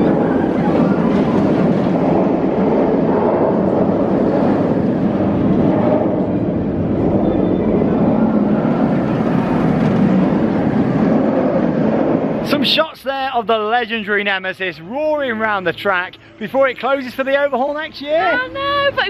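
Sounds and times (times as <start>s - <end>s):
roller coaster train roaring: 0.0s - 19.0s.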